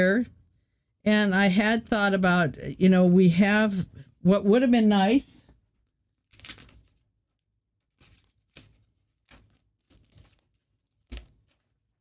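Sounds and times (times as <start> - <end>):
rustling of craft supplies: 5.5 - 12.0.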